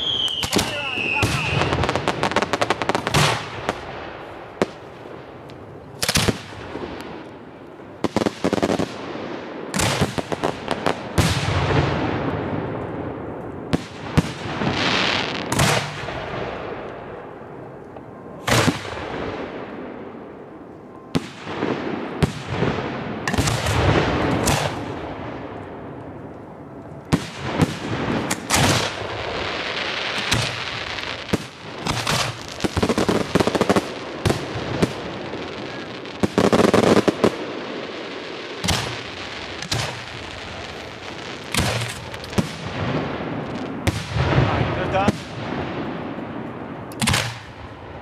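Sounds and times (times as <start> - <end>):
firework crackle: 0.0 - 12.6, 13.5 - 17.4, 27.1 - 48.0.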